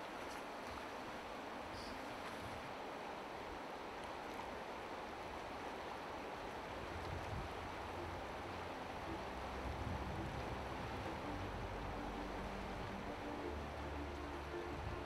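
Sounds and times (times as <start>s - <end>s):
river running over stones: 0.0s - 15.0s
wind rumble on microphone: 6.5s - 15.0s.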